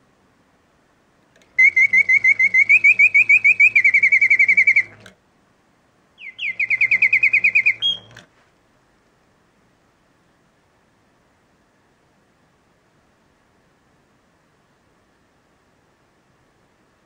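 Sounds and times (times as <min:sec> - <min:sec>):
low steady hum: 0:00.0 - 0:17.0
mechanical bird whistle trilling: 0:01.6 - 0:05.1, 0:06.2 - 0:08.2.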